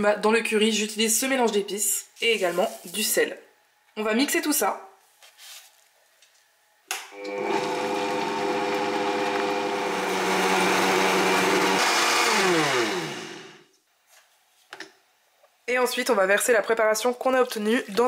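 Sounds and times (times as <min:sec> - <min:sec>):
blender motor whine: 0:07.0 - 0:13.7.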